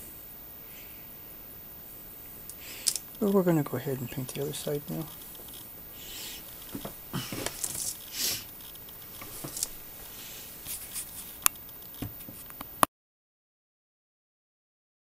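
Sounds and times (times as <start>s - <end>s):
plastic parts rustling on paper: 6.4s - 12.6s.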